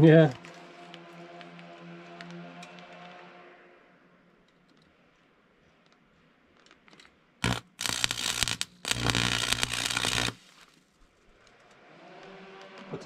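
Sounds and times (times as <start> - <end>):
welding arc crackling: 7.4 - 10.8.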